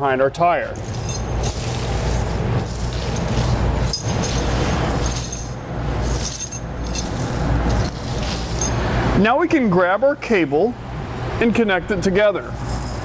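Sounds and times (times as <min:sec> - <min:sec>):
steady low hum: 0:00.3 - 0:13.0
chain rattling on concrete: 0:00.8 - 0:08.8, 0:12.5 - 0:13.0.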